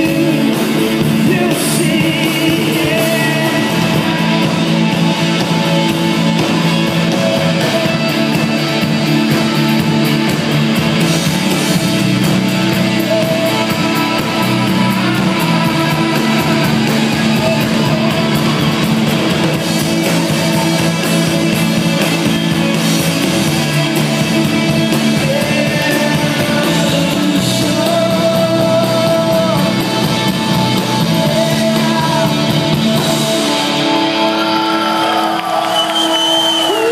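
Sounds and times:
person singing: 0.0 - 8.9, 11.5 - 35.5
electric guitars: 0.0 - 36.9
live rock band: 0.0 - 36.9.

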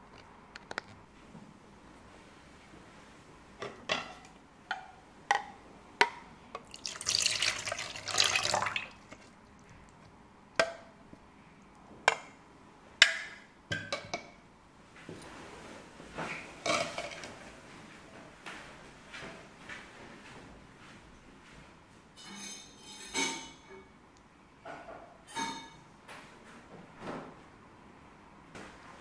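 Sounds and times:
liquid pouring into metal bowl: 6.6 - 9.4.

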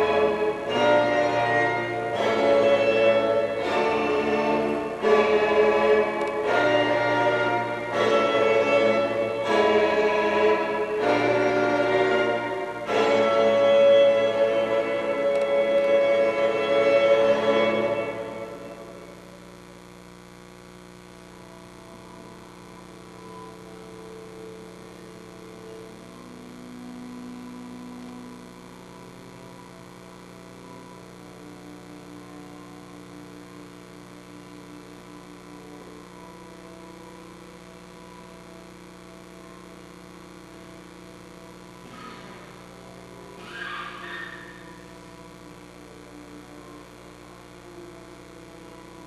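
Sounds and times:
electrical mains hum: 0.0 - 49.0
faint held tones: 41.4 - 49.0.

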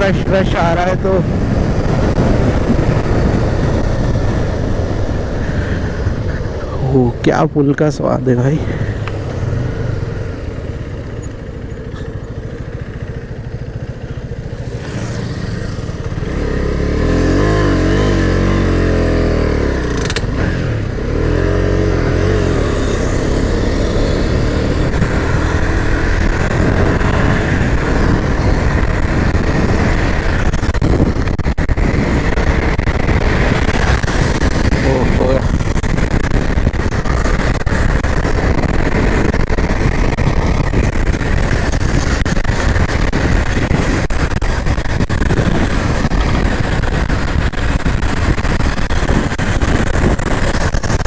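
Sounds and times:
motorcycle engine revving: 0.0 - 7.2, 8.1 - 51.0
road rumble: 0.0 - 51.0.

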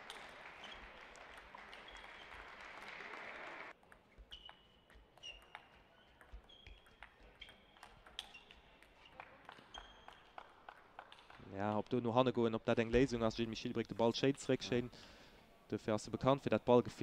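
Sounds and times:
table tennis ball clicking: 3.9 - 8.9.

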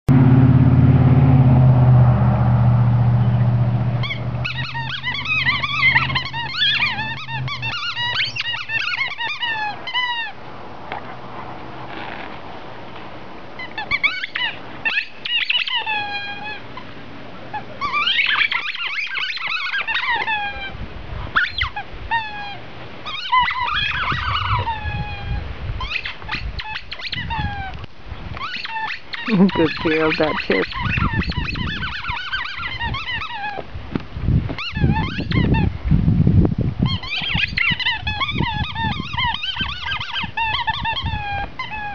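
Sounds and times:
low steady rumble: 0.1 - 41.9
dog chewing squeaky toy: 4.0 - 10.4, 13.6 - 16.9, 17.5 - 27.7, 28.4 - 33.6, 34.6 - 35.7, 36.8 - 41.9.

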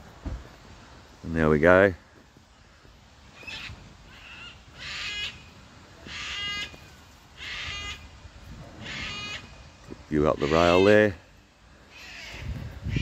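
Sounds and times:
crow cawing: 3.4 - 8.1, 8.8 - 9.7, 10.4 - 13.0.

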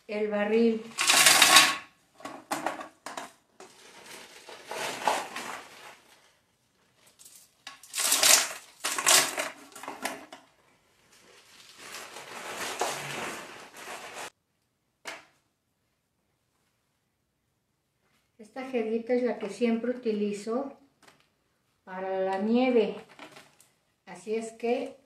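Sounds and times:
ice cubes clattering into bucket: 0.9 - 1.8, 7.2 - 10.3.

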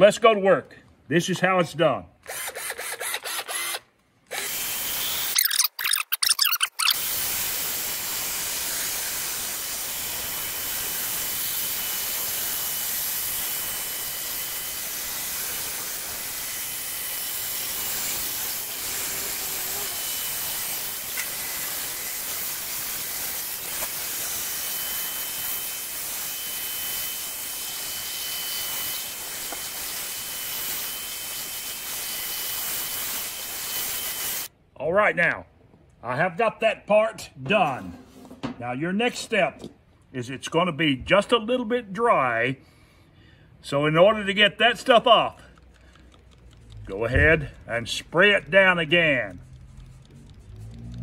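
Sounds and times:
drill wire brush scrubbing metal: 2.3 - 34.5.

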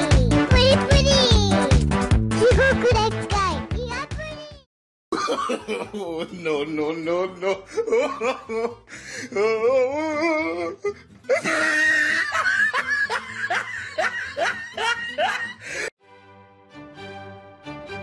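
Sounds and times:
person laughing: 2.4 - 3.0, 5.1 - 6.6, 7.3 - 15.9.

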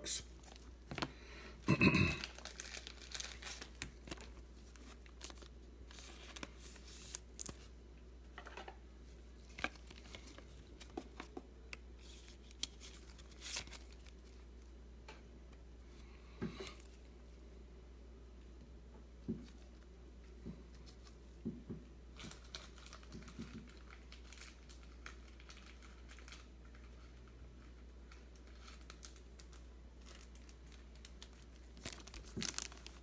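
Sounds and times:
cards rustling and crinkling: 0.2 - 1.2, 2.2 - 7.8, 8.4 - 14.7, 22.1 - 33.0.

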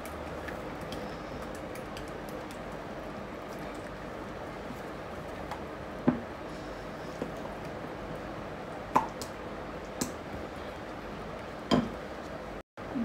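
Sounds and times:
spatula stirring thick batter: 0.0 - 5.8.

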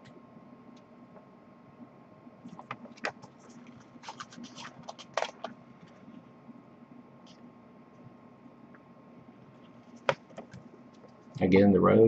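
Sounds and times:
paper pages rustling: 2.4 - 6.1.

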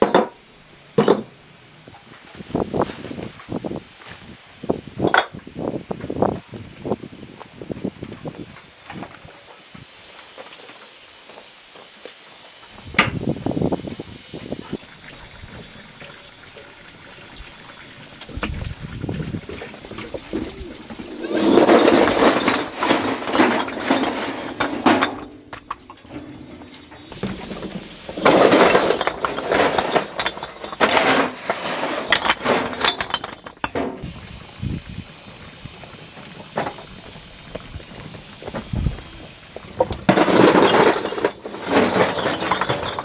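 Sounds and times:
bricks clattering onto a pile: 14.8 - 34.1, 39.6 - 43.0.

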